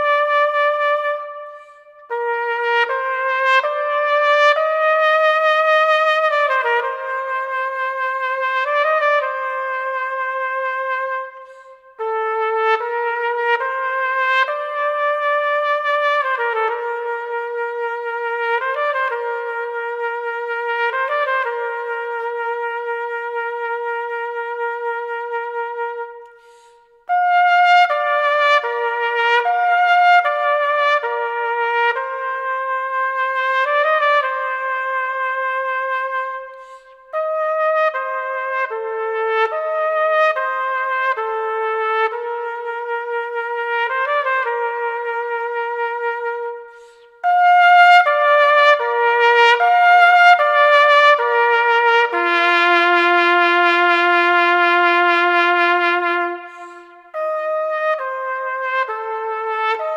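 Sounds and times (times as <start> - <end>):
solo trumpet slow melody: 0.0 - 59.9.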